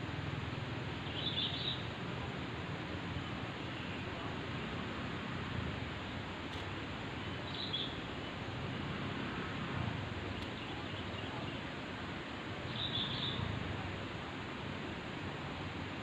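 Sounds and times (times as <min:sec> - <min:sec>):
outdoor background hiss: 0:00.0 - 0:16.0
bird calling: 0:01.0 - 0:01.9, 0:12.7 - 0:13.5.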